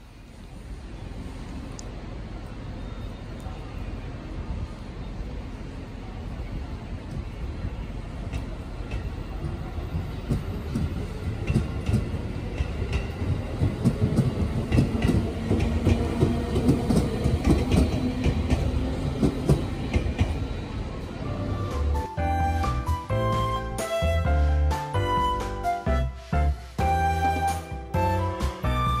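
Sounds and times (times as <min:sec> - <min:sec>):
train rumble: 0:00.0 - 0:29.0
wheels clacking over rail joints: 0:08.3 - 0:20.5.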